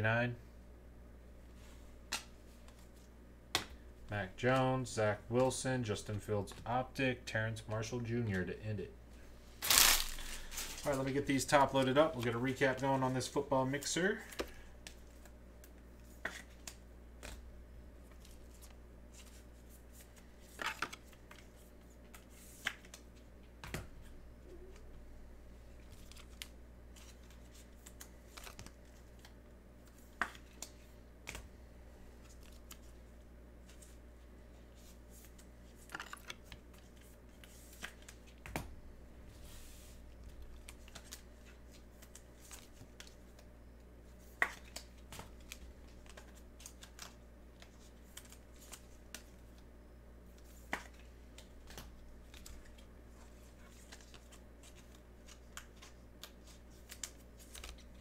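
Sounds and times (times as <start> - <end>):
cards sliding softly: 33.6 - 38.4, 39.3 - 43.4.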